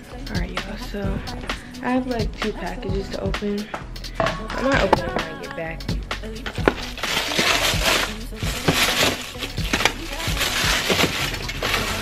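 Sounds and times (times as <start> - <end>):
background music with beat: 0.0 - 12.0
cardboard box crinkling: 6.7 - 12.0.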